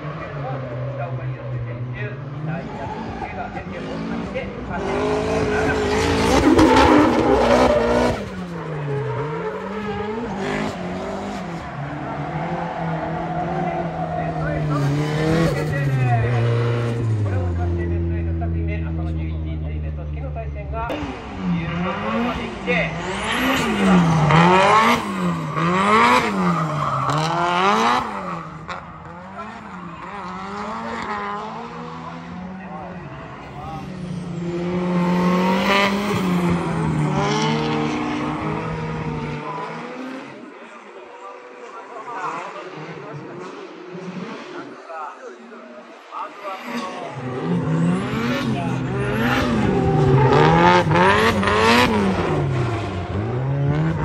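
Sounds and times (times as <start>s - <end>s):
car engine revving: 0.0s - 44.8s, 45.8s - 54.0s
tyre squeal: 24.9s - 29.2s.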